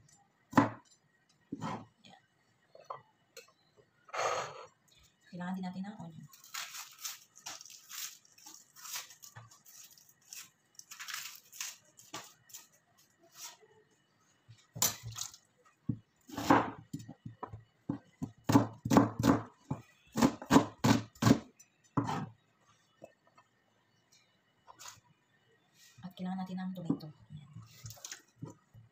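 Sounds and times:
onion skin crackling: 0:06.3 - 0:12.7.

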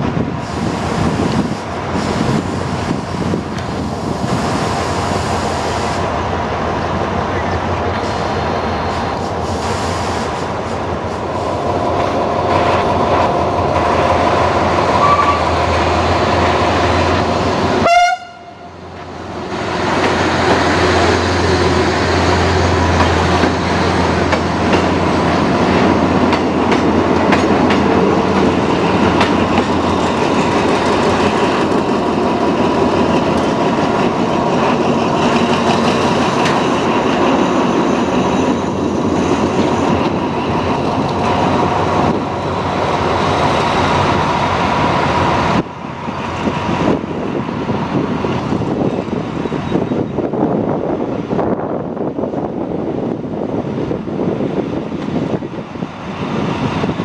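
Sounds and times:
rail vehicle engine drone: 0:00.0 - 0:57.0
wheels clacking on rails: 0:00.0 - 0:57.0.

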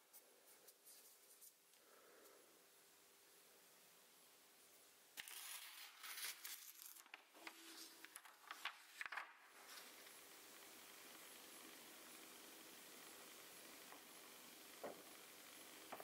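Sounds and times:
paper tearing: 0:05.2 - 0:10.0.

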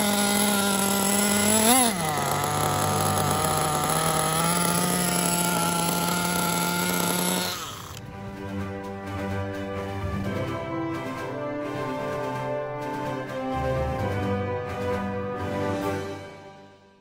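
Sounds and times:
small two-stroke engine idling: 0:00.0 - 0:08.1.

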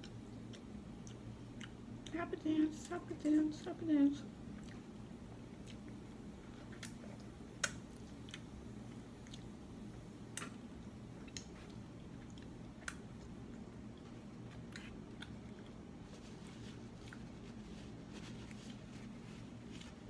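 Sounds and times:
low steady hum: 0:00.0 - 0:20.0
wet mouth clicks and smacks: 0:06.7 - 0:07.0, 0:11.2 - 0:13.3.

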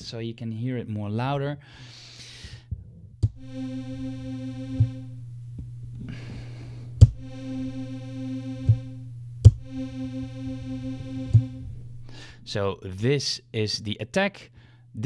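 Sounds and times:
steady low hum: 0:03.3 - 0:14.0
synthesizer sawtooth note: 0:03.4 - 0:05.3, 0:07.0 - 0:12.1.

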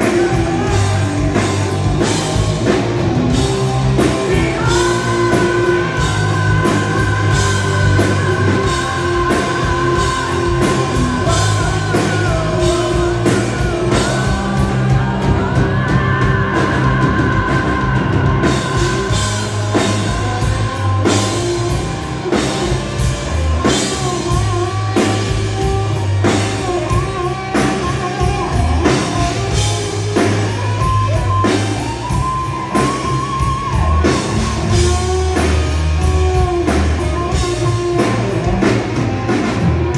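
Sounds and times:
person singing: 0:00.0 - 0:02.8, 0:03.4 - 0:22.7
distorted electric guitars: 0:00.0 - 0:39.9
drum kit beat: 0:00.0 - 0:39.9.

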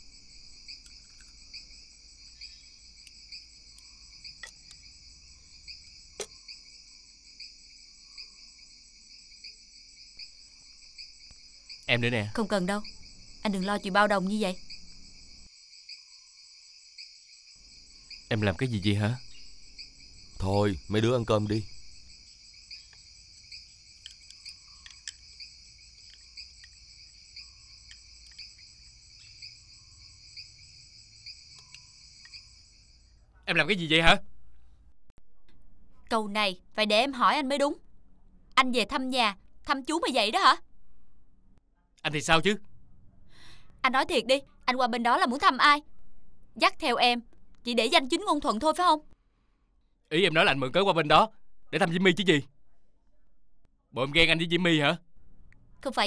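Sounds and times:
crickets chirping: 0:00.0 - 0:34.7
chopsticks clicking against bowls: 0:24.0 - 0:25.2, 0:26.0 - 0:26.8, 0:27.8 - 0:28.6.

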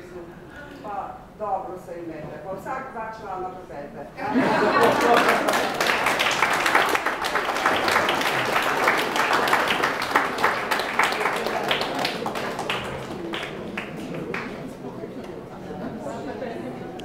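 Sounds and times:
audience applauding: 0:04.7 - 0:14.8.

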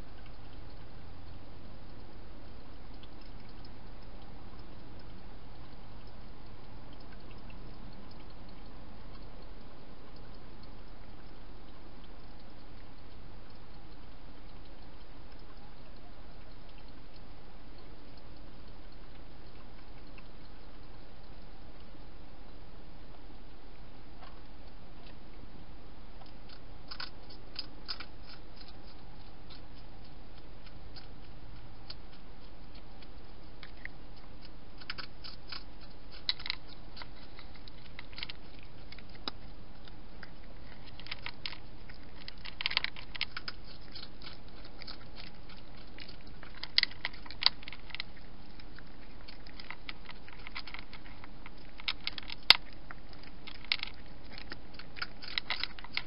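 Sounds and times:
animal crunching dry food: 0:26.2 - 0:56.0.

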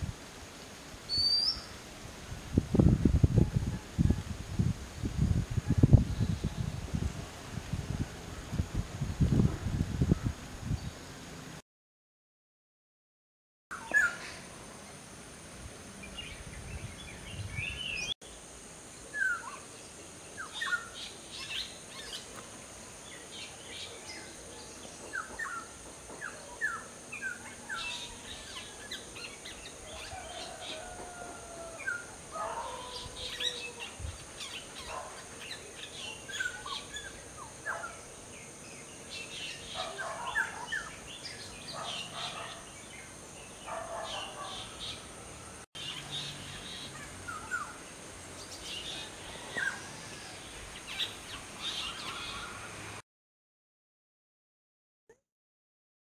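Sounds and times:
steady high-pitched hiss: 0:00.0 - 0:11.6, 0:13.8 - 0:53.0
birds chirping and whistling: 0:01.1 - 0:01.7.

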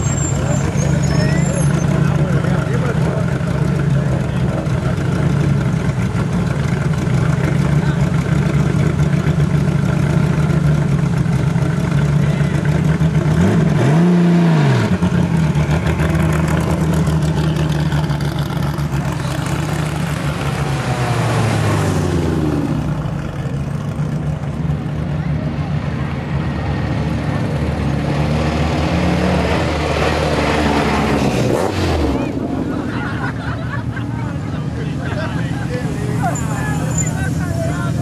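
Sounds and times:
race car engine idling: 0:00.1 - 0:13.6, 0:14.9 - 0:26.5.

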